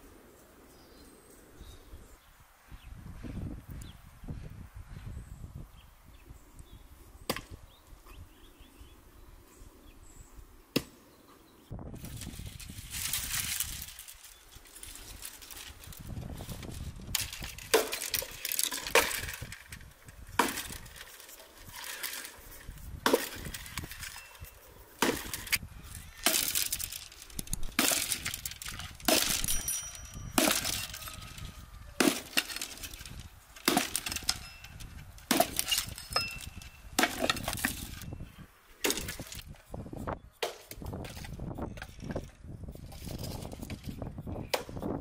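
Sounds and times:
hatchet chopping branches: 7.3 - 7.6, 10.7 - 11.0, 16.6 - 25.6, 26.2 - 38.1, 38.8 - 39.5, 40.4 - 41.4.

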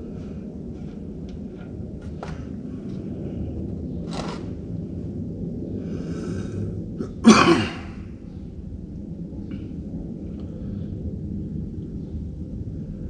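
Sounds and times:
steady low rumble: 0.0 - 13.0
drawn-in breath: 5.7 - 6.8
man sneezing: 7.1 - 8.0.

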